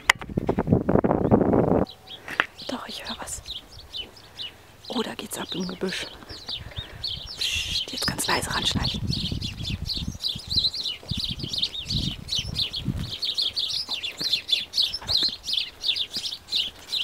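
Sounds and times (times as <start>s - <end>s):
wind on microphone: 0.0s - 4.2s, 6.1s - 13.9s
songbirds chirping: 0.0s - 17.0s.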